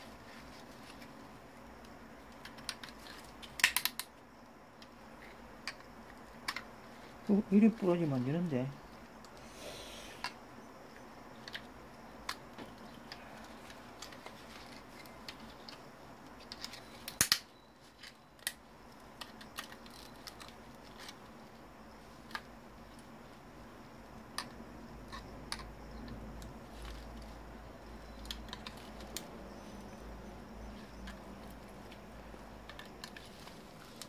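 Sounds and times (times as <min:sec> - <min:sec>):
plastic parts clicking and snapping: 0:01.8 - 0:04.1, 0:11.4 - 0:21.2, 0:28.2 - 0:29.3, 0:32.6 - 0:34.0.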